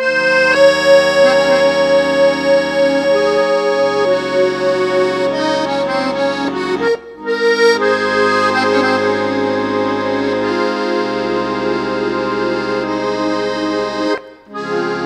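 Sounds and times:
accordion playing chords: 0.0s - 15.0s.

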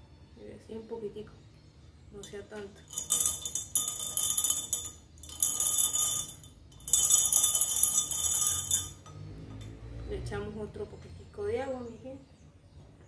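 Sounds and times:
stick clinking in wine glass: 2.2s - 9.2s
glass ringing lightly: 2.8s - 9.2s.

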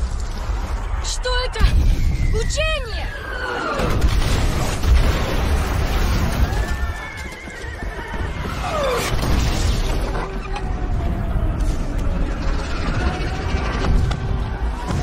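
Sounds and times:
horses whinnying: 6.2s - 9.2s
low rumble: 7.9s - 15.0s.

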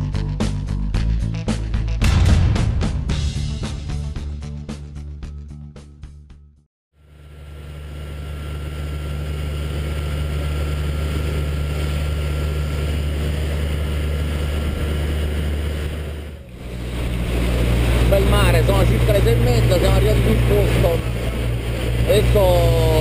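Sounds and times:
boat engine drone: 7.0s - 23.0s
water rushing past hull: 9.6s - 23.0s.

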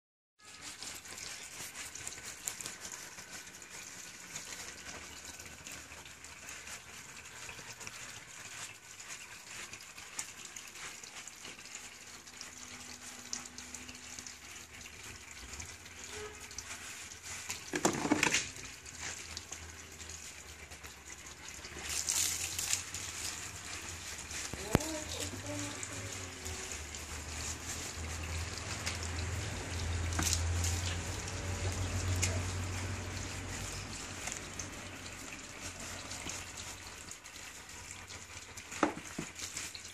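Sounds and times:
water poured over dog: 0.4s - 39.9s
water splashing on wet dog: 0.5s - 39.9s.

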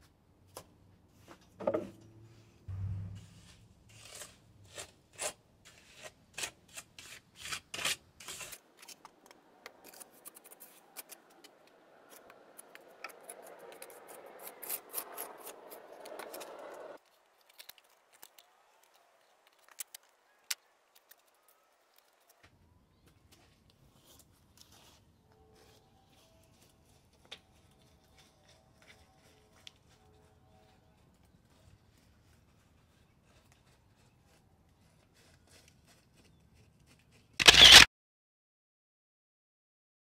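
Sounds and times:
trowel scraping mortar: 3.1s - 9.0s, 12.1s - 17.0s.

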